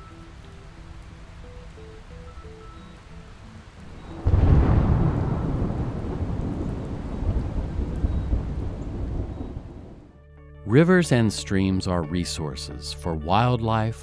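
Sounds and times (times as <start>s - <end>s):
rain falling on water: 0.0s - 10.1s
thunder rumbling: 4.2s - 10.1s.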